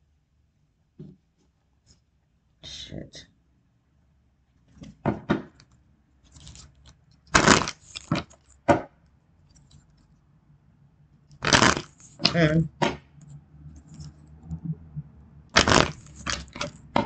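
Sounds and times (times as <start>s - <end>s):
cards shuffling: 6.3s - 8.6s, 11.4s - 12.5s, 15.6s - 16.8s.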